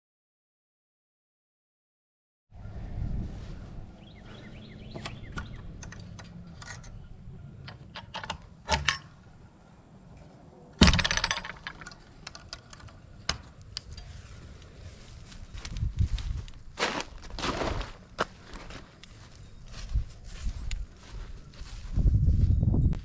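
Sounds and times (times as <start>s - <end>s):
metal latch clicks and taps: 4.9s - 9.4s, 10.8s - 14.1s
metal clatter: 10.8s - 14.1s.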